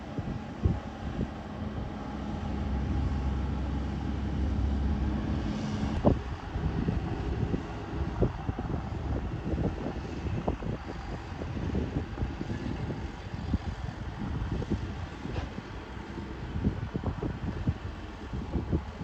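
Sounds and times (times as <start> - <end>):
tractor engine drone: 0.0 - 19.0
wind buffeting microphone: 0.0 - 19.0.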